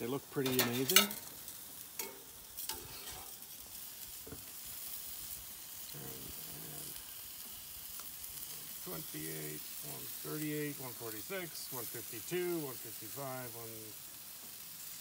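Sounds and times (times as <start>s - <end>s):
chicken sizzling on grill: 0.0s - 15.0s.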